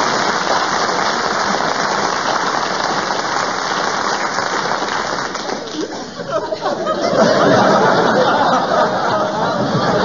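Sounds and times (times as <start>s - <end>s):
audience clapping: 0.0s - 6.2s
audience laughing: 5.3s - 10.0s.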